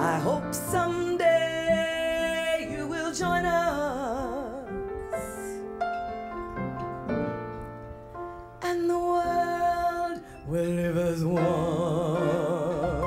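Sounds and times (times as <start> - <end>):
woman singing into a microphone: 0.0 - 5.6, 8.6 - 13.0
soft instrumental accompaniment: 0.0 - 13.0.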